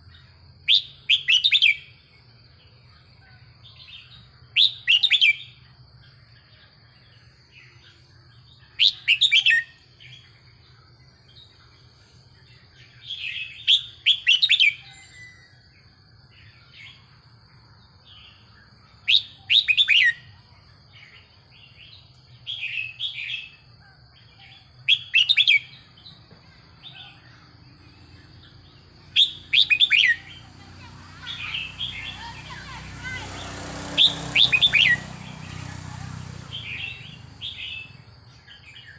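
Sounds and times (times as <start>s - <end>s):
bird whistling song: 0.6s - 2.0s, 4.0s - 5.6s, 8.6s - 10.3s, 13.0s - 15.6s, 18.1s - 20.4s, 24.6s - 26.0s, 29.1s - 30.5s, 33.9s - 35.5s.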